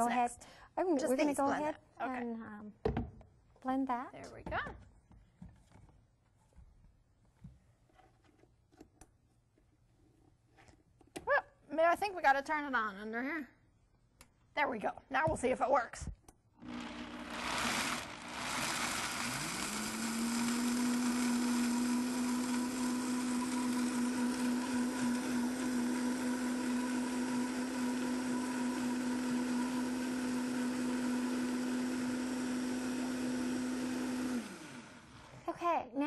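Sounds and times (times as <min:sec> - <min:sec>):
blender motor running: 0:16.6 - 0:35.4.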